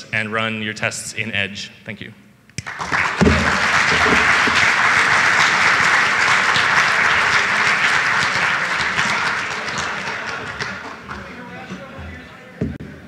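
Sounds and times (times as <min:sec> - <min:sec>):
audience applause: 0:02.6 - 0:11.5.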